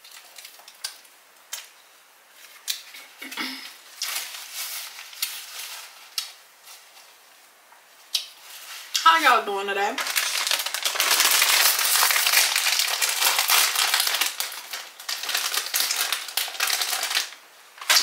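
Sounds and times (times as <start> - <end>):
paper napkin rustling: 4.0 - 7.5.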